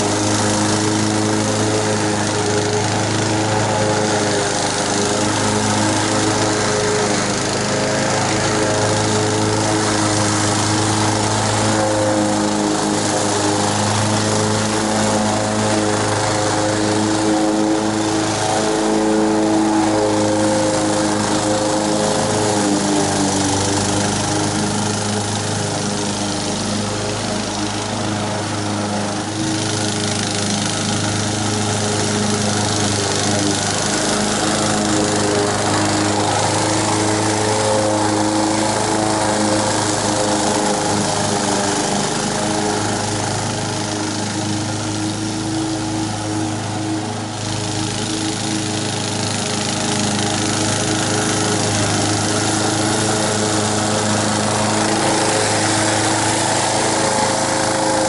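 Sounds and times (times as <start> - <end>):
lawn mower engine running: 0.0 - 58.0.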